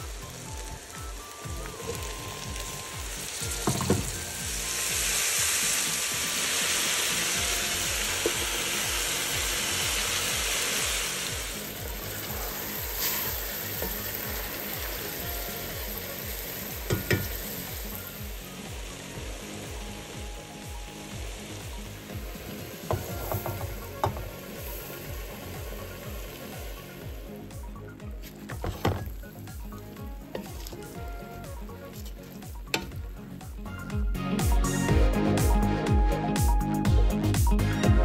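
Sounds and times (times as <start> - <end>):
vegetables sizzling in hot oil: 0.0 - 35.5
metal spoon knocking on pot: 22.9 - 24.3.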